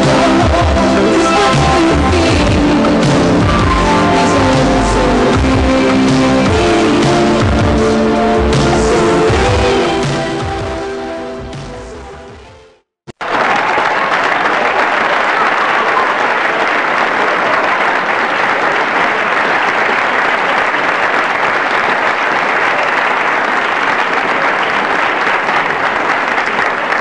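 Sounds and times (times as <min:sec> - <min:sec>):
audience applauding: 0:13.1 - 0:27.0.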